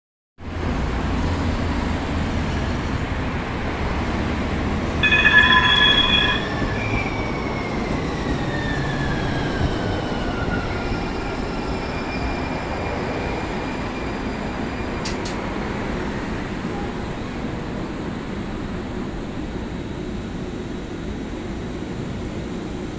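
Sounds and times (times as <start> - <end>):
shrill chord of high tones: 5.0 - 7.1.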